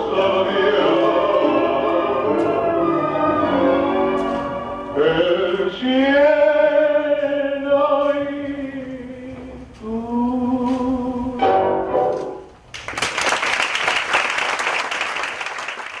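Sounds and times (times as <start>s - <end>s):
tango song with singer and orchestra: 0.0s - 12.6s
audience applause: 12.8s - 16.0s.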